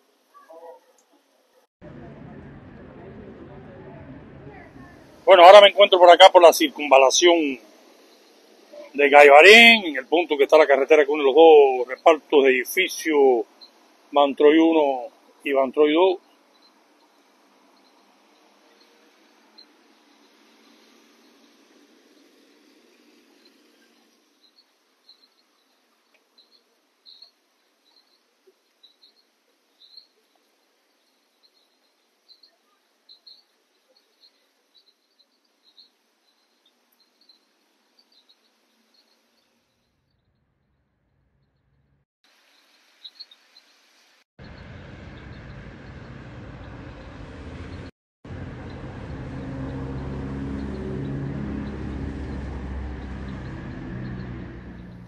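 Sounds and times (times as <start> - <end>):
vehicle engine humming: 1.8 - 16.2, 44.4 - 55.0
faint high chirps: 4.5 - 40.4
light hiss: 5.1 - 39.9, 42.3 - 45.5
tyres hissing on wet road: 47.2 - 55.0.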